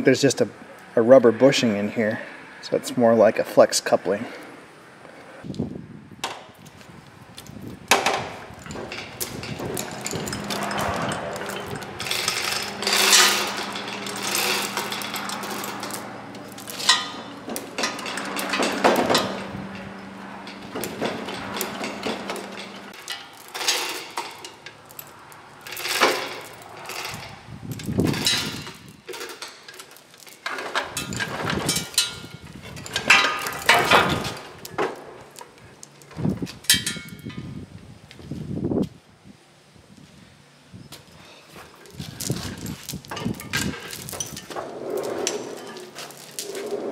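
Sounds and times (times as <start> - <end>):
metal chain clanking: 7.9 - 37.5, 41.8 - 46.9.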